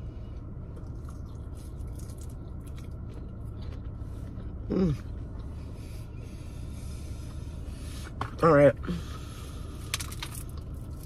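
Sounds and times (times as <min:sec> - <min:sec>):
low steady hum: 0:00.0 - 0:11.0
crisp chewing: 0:00.7 - 0:05.5, 0:09.8 - 0:11.0
person humming: 0:04.7 - 0:05.0.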